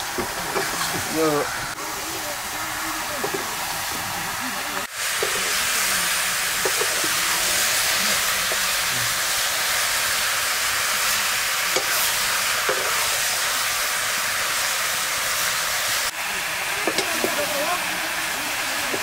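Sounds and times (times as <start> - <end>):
ladle knocking wok: 0.0 - 1.1, 3.2 - 4.2, 5.1 - 5.9, 6.5 - 8.8, 11.7 - 13.3, 16.7 - 17.5
meat sizzling in a wok: 0.0 - 19.0.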